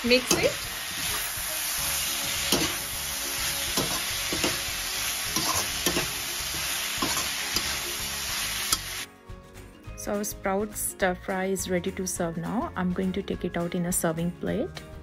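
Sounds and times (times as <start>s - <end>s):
pan sizzling: 0.0s - 9.1s
metal spatula scraping pan: 5.3s - 7.8s.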